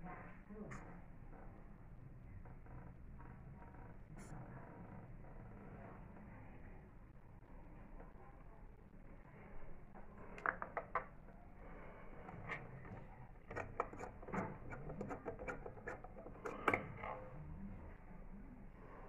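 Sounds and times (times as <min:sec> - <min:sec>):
porcelain and metal parts clicking: 0:13.4 - 0:17.0.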